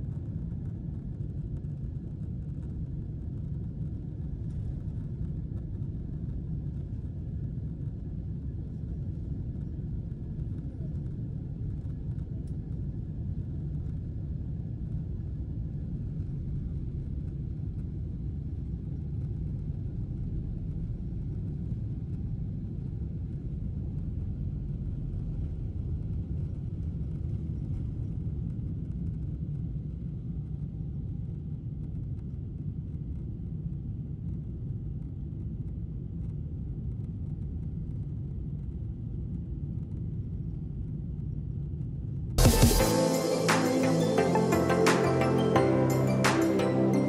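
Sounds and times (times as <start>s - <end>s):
airliner cabin engine rumble: 0.0s - 31.8s.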